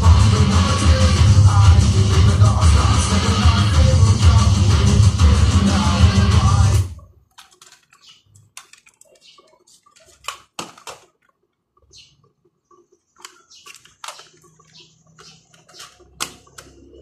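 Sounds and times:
plastic cases clicking and clattering: 7.2s - 11.6s, 13.2s - 17.0s.

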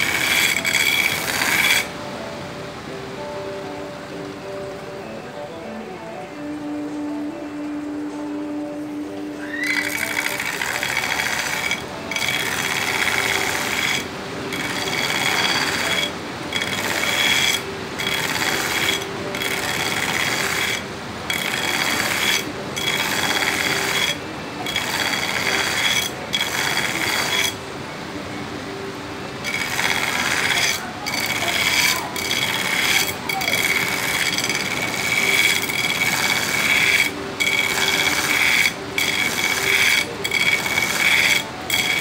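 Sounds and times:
belt grinder grinding steel: 0.0s - 1.9s, 9.6s - 27.6s, 29.4s - 42.0s.

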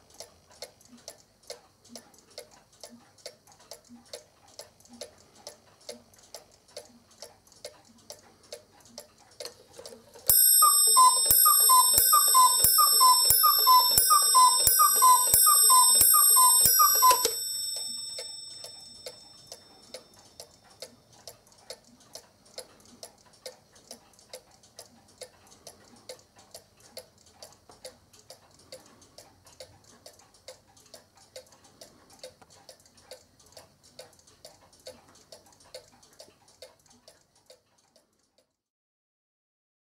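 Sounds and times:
clock ticking: 0.0s - 38.2s
clock bell striking: 10.3s - 19.8s.

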